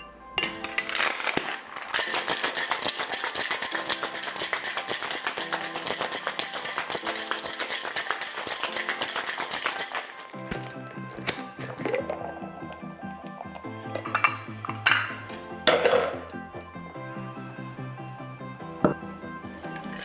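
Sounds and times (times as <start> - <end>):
ice rattling in cocktail shaker: 0.6 - 10.8.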